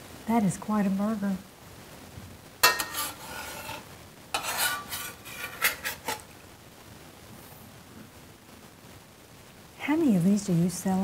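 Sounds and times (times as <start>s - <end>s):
metal spatula scraping skillet: 2.6s - 6.3s.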